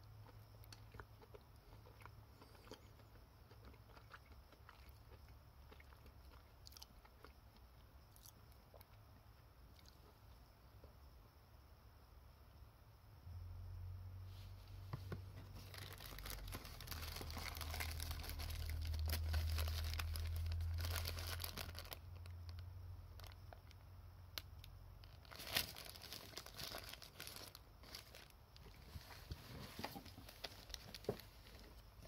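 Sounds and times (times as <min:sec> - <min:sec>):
low hum: 0:13.2 - 0:14.8
paper wrappers crinkling: 0:15.5 - 0:22.2, 0:25.0 - 0:31.7.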